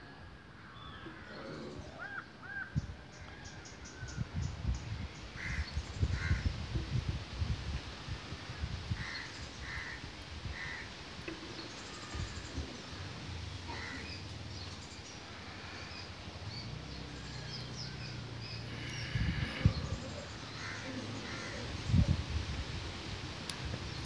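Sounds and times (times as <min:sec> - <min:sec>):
crows cawing: 0:05.4 - 0:06.4, 0:09.0 - 0:11.0, 0:13.7 - 0:14.1, 0:20.5 - 0:21.7.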